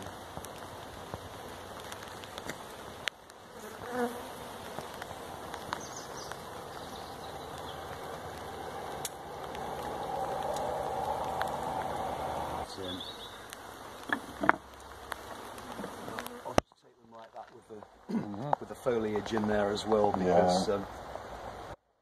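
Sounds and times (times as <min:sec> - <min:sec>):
bee swarm buzzing: 0:00.0 - 0:16.6.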